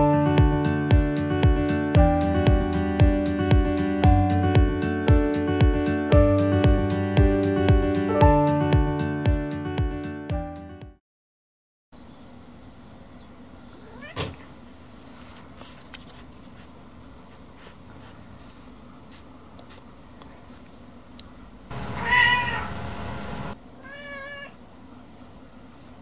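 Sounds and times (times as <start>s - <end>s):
cat meowing: 13.8s - 14.4s, 21.9s - 22.7s, 23.8s - 24.6s.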